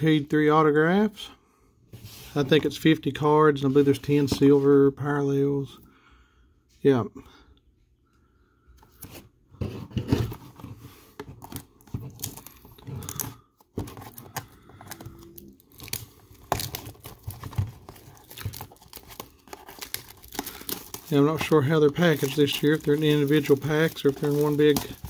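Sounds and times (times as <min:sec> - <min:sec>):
plastic wrap crinkling and tearing: 0:13.9 - 0:25.0.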